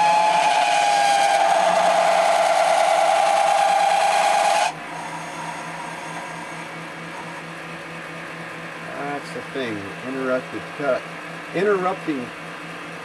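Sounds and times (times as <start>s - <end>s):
lathe boring bar squealing: 0.0s - 7.6s
lathe running hum: 0.0s - 13.0s.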